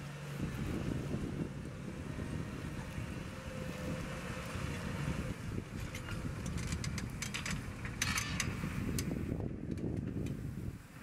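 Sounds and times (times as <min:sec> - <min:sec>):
tractor diesel engine under load: 0:00.0 - 0:11.0
sharp clicks and rattles: 0:05.8 - 0:10.4.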